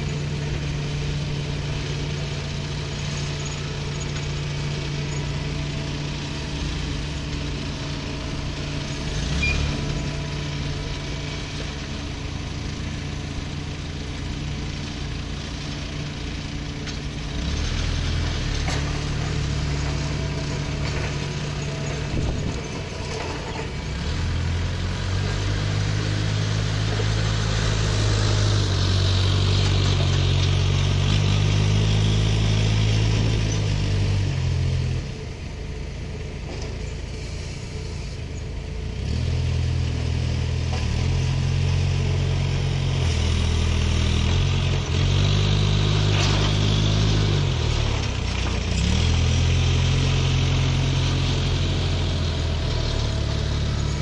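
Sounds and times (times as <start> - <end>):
engine revving: 0.0 - 14.2, 16.9 - 35.2, 38.9 - 54.0.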